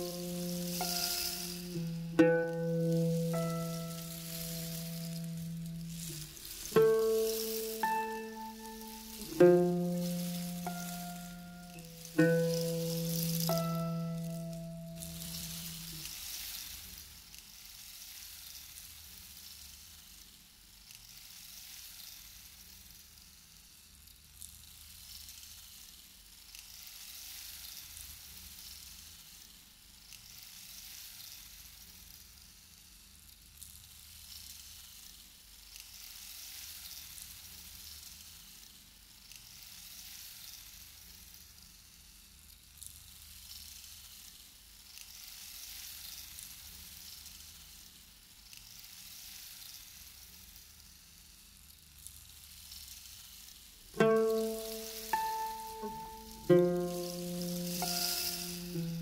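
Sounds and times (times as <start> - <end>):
high hiss: 0.0 - 16.2, 54.0 - 59.0.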